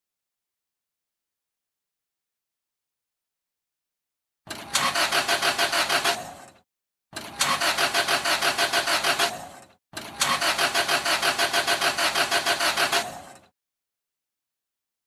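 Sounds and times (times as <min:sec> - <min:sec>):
starter motor cranking engine: 0:04.5 - 0:13.5.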